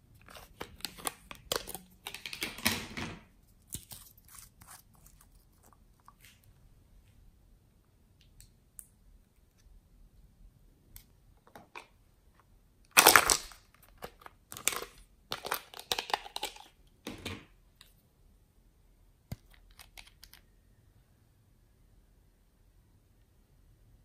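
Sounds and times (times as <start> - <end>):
plastic bottle crinkling: 13.0 - 16.7.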